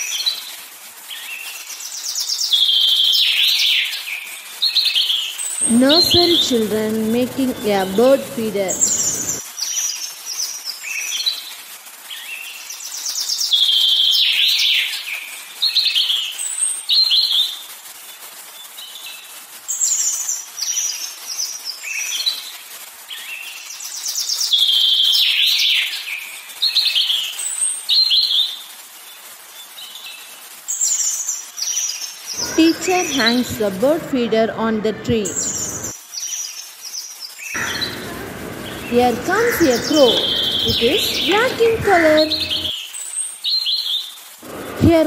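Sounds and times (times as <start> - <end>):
songbird chirps and trills: 4.8 - 9.4, 37.2 - 43.8.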